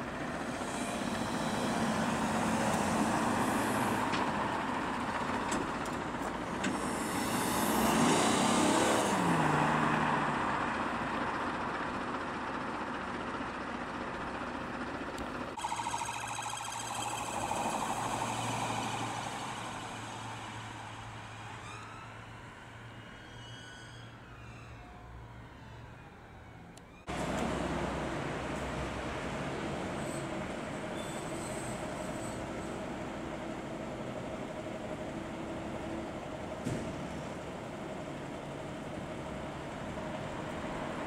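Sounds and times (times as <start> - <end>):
police cars passing at speed: 0.0 - 12.8, 15.5 - 23.4
wailing siren: 15.6 - 27.2.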